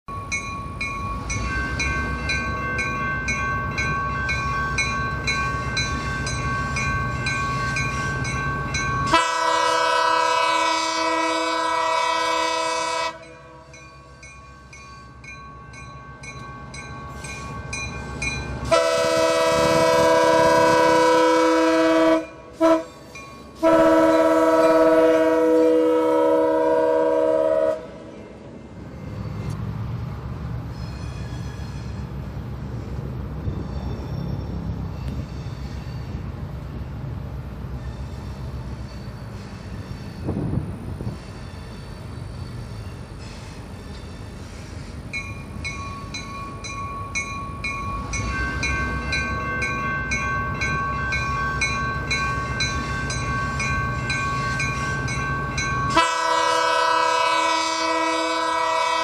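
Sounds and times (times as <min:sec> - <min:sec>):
locomotive bell ringing: 0:00.1 - 0:10.9, 0:12.1 - 0:19.7, 0:21.6 - 0:26.4, 0:37.7 - 0:57.8
diesel locomotive running: 0:00.1 - 0:59.0
locomotive horn blasts: 0:09.0 - 0:13.7, 0:18.6 - 0:23.0, 0:23.6 - 0:28.0, 0:55.9 - 0:59.0.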